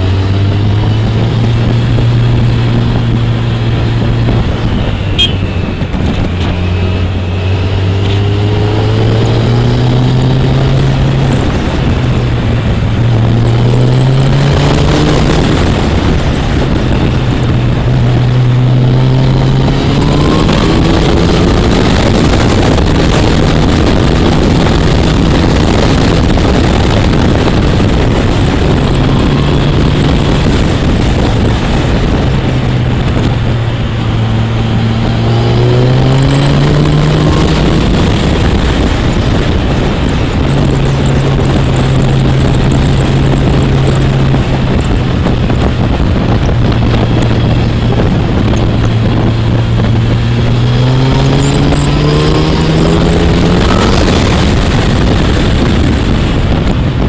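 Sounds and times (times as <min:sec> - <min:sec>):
motorcycle engine accelerating: 0:00.0 - 0:57.0
wind rush on microphone: 0:00.0 - 0:57.0.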